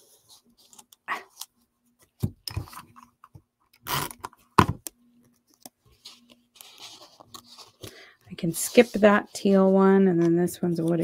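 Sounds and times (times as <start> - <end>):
paper rustling: 5.5 - 11.0.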